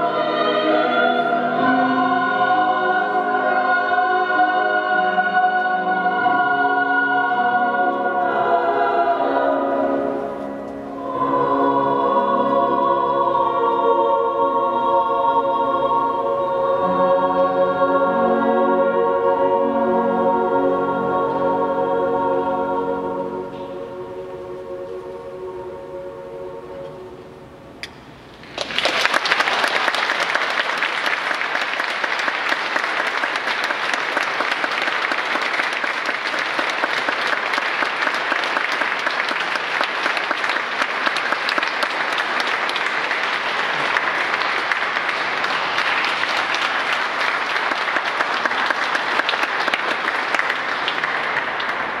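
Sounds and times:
audience applause: 0:28.4 - 0:52.0.

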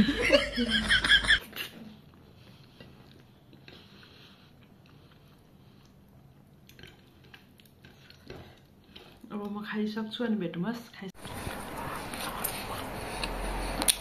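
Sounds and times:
person chewing food: 0:01.4 - 0:09.3, 0:11.2 - 0:14.0.

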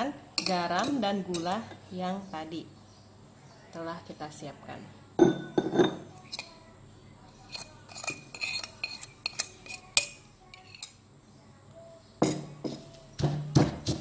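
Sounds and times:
spoon clinking on china plate: 0:07.4 - 0:11.0
stone pestle grinding in mortar: 0:12.2 - 0:14.0.

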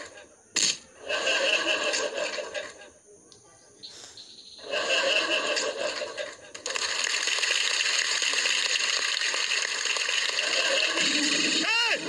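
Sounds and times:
audience laughing: 0:01.0 - 0:02.9, 0:04.6 - 0:06.6, 0:10.4 - 0:11.4
audience clapping: 0:06.5 - 0:11.7
audience cheering: 0:07.3 - 0:12.0.

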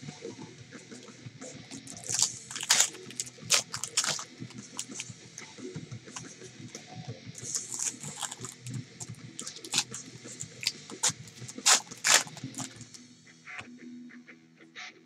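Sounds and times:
plastic wrappers crinkling: 0:01.8 - 0:05.1, 0:07.4 - 0:13.0
wrappers ripping open: 0:01.8 - 0:05.1, 0:07.4 - 0:13.0.

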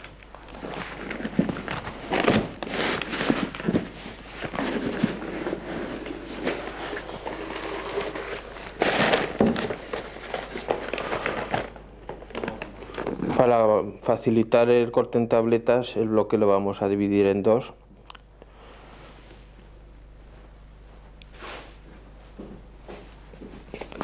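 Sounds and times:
paper rustling and crinkling: 0:00.0 - 0:13.4.

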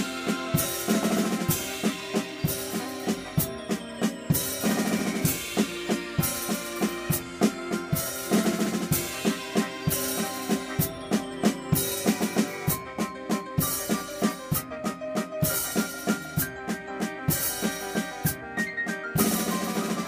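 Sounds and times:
cymbal crashes: 0:00.0 - 0:12.9
bass drum and snare hits: 0:00.0 - 0:20.0.

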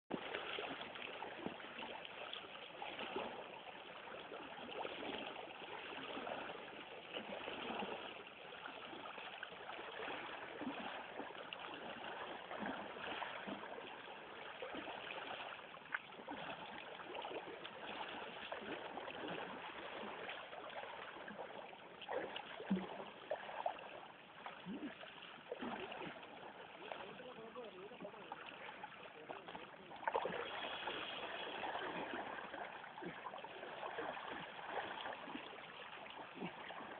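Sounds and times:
water rushing and splashing: 0:00.1 - 0:36.9.

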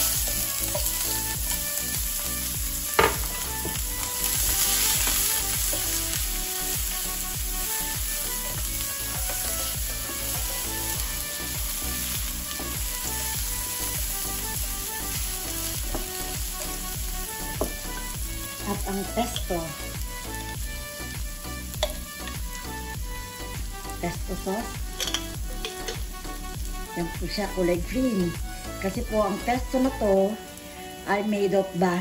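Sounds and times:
spatula stirring in pan: 0:00.0 - 0:15.0
onion and garlic sizzling in oil: 0:00.0 - 0:32.0.

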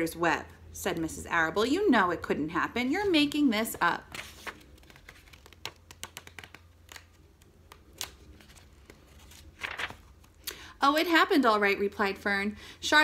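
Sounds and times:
paper rustling: 0:04.1 - 0:10.4.

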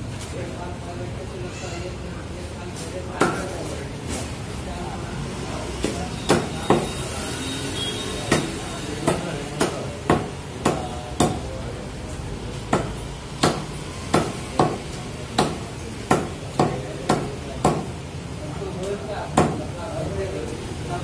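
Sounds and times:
meat cleaver chopping on block: 0:12.7 - 0:14.8.

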